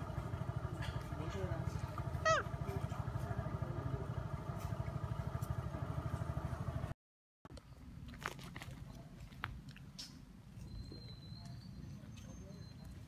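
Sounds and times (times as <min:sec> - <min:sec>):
small engine idling: 0:00.0 - 0:07.0.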